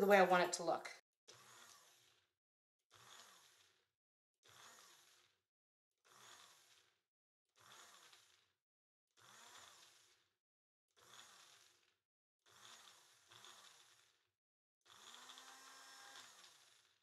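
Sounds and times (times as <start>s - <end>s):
blender motor whirring: 1.3s - 2.3s, 2.9s - 5.4s, 6.0s - 7.0s, 7.6s - 8.5s, 9.2s - 17.0s.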